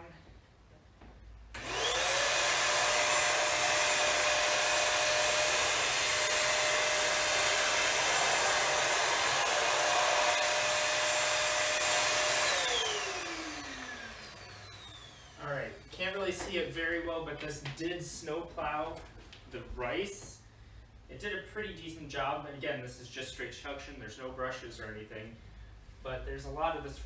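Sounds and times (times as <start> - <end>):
vacuum motor high whine: 1.6 - 16.5.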